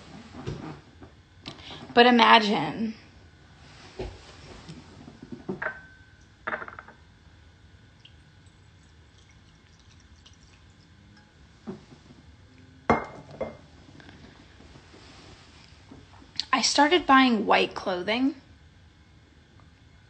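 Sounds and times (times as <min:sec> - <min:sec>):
knocks and clinks of hard objects: 0:05.5 - 0:07.0.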